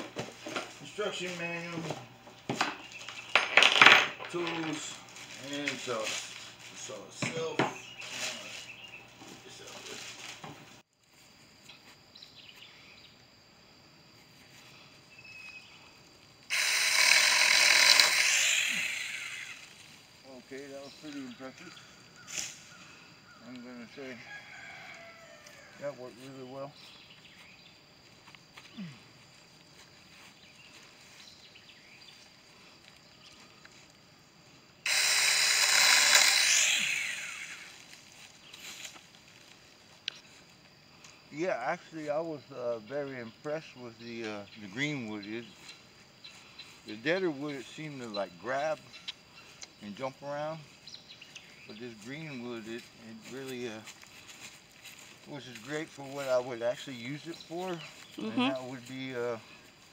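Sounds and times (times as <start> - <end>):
battery chainsaw cutting branch: 16.5 - 20.0, 34.9 - 38.1
thin steady high tone: 54.2 - 59.5.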